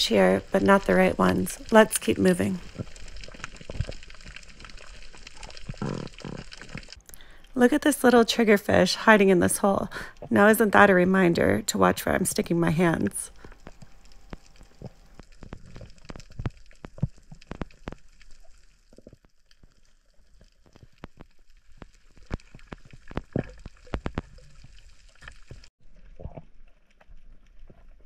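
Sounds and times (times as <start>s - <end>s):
underwater clicks and crackles: 0.0s - 7.6s, 13.3s - 28.0s.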